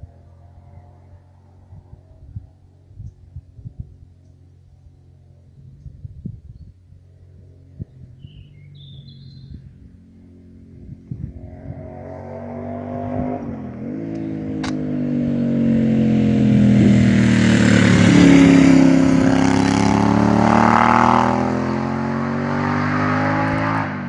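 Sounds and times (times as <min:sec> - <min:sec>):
motorcycle accelerating past: 0:08.2 - 0:24.0.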